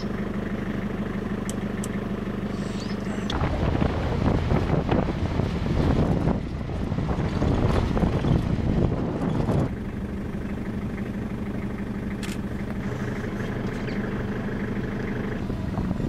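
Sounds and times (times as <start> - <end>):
engine idling: 0.0 - 16.0
wind buffeting microphone: 3.3 - 10.0.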